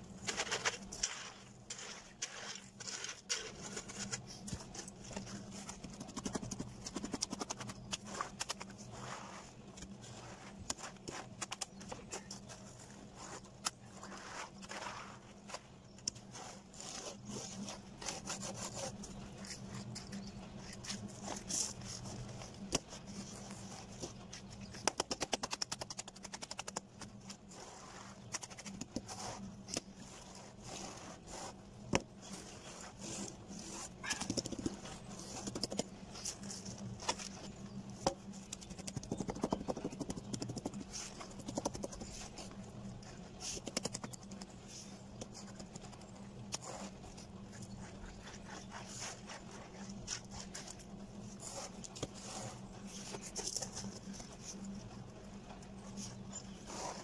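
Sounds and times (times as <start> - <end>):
board scraping wet concrete: 0.2 - 4.7.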